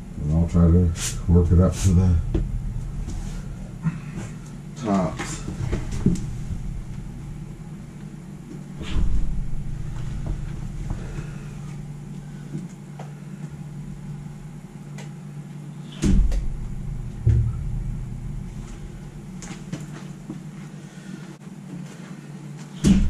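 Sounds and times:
low hum: 0:00.0 - 0:23.0
loud dull knocks: 0:02.2 - 0:04.5, 0:16.0 - 0:20.0, 0:22.8 - 0:23.0.

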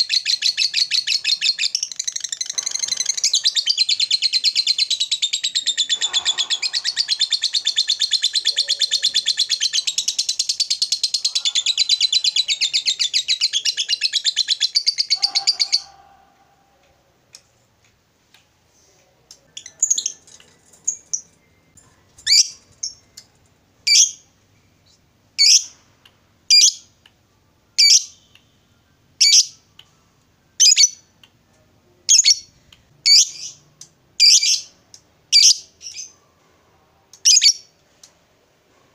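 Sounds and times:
lovebird chattering trill: 0:00.1 - 0:16.0
bird sharp high calls: 0:02.4 - 0:16.3.

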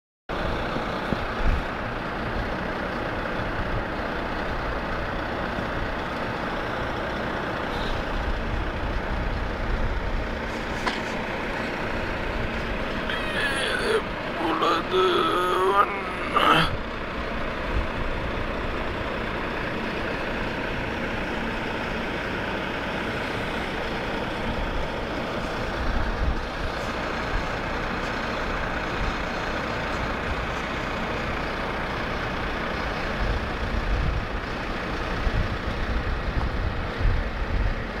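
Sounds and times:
trucks driving past rumbling: 0:00.3 - 0:38.0.

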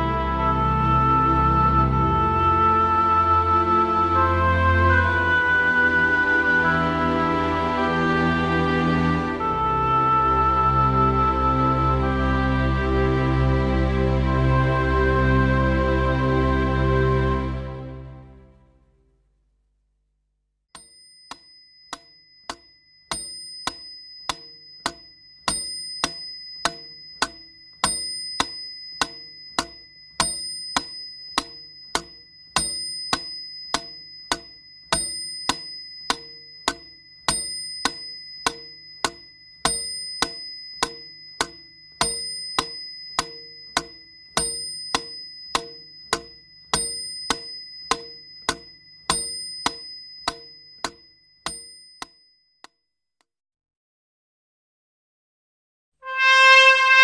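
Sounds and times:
bell-like ding: 0:20.8 - 0:52.7.

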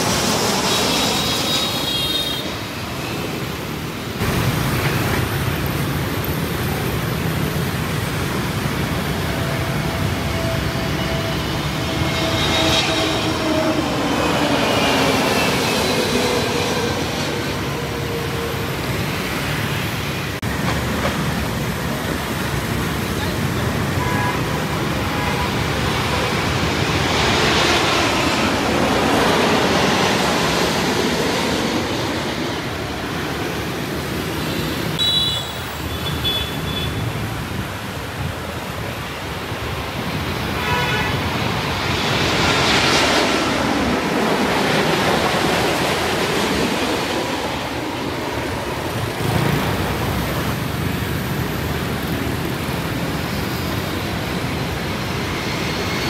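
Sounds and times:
street traffic: 0:00.0 - 0:56.0
car horn beeps: 0:35.0 - 0:37.0.

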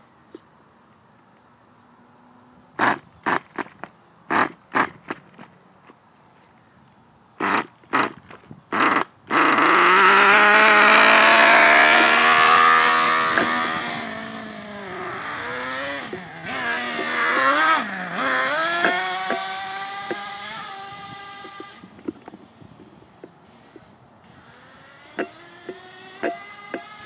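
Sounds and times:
small nitro engine sputtering and running: 0:07.4 - 0:27.0.

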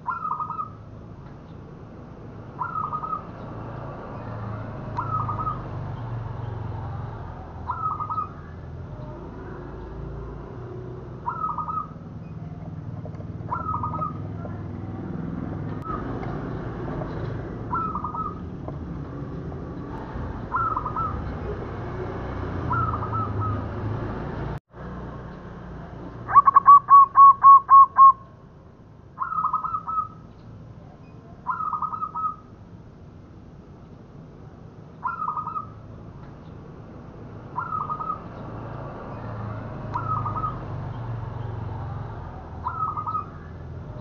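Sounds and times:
dove cooing: 0:00.0 - 0:00.8, 0:02.6 - 0:03.4, 0:05.0 - 0:05.7, 0:07.5 - 0:09.6, 0:11.2 - 0:14.9, 0:17.1 - 0:18.8, 0:20.4 - 0:21.6, 0:22.6 - 0:23.8, 0:26.3 - 0:28.2, 0:42.6 - 0:44.0.

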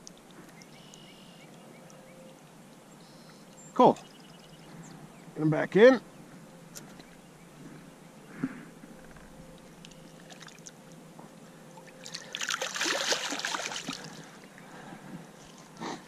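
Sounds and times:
fish splashing in shallow water: 0:09.7 - 0:10.8, 0:11.7 - 0:14.7.

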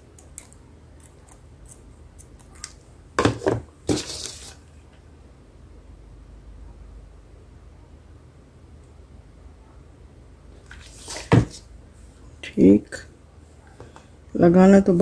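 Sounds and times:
rustling scrape: 0:03.9 - 0:04.6, 0:10.7 - 0:11.6.

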